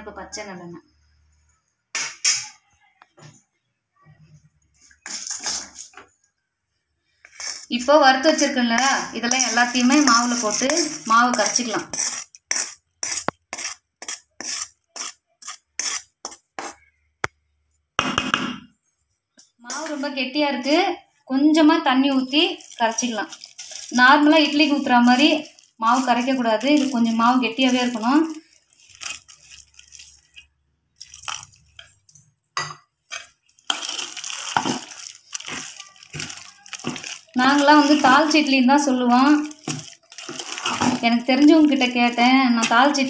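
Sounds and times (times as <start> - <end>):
batter mixed by hand: 2.4 - 18.3, 22.0 - 43.0
metal spoon scraping metal bowl: 5.0 - 6.0, 8.7 - 16.8, 33.0 - 43.0.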